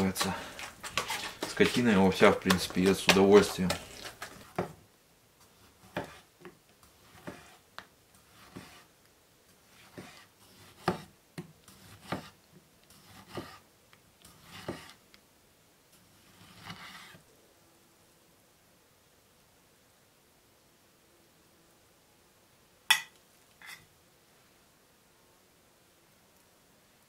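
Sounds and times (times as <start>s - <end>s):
knife rubbing scrape: 0.0s - 4.5s, 7.0s - 7.6s, 8.3s - 8.9s, 14.2s - 15.0s, 16.1s - 17.2s, 23.6s - 23.8s.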